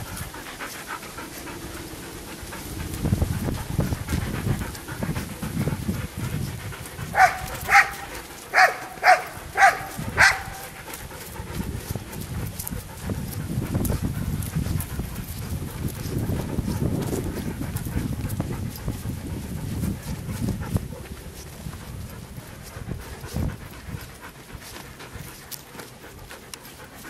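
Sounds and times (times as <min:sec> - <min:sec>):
low rustling noise: 0:00.0 - 0:27.0
dog barking: 0:07.1 - 0:10.7.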